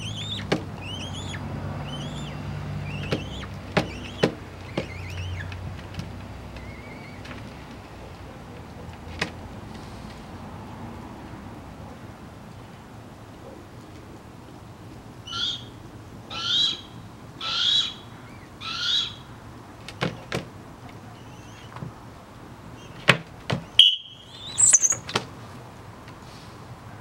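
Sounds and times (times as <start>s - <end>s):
young hawk calling: 0.0s - 5.6s, 6.5s - 7.3s, 15.2s - 19.4s, 23.8s - 25.1s
short high whistle: 23.8s - 25.0s.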